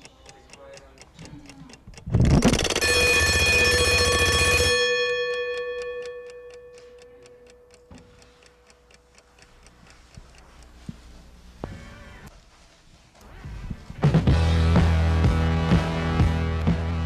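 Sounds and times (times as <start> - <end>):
clock ticking: 0.0 - 11.2
alarm clock bell ringing: 2.5 - 7.7.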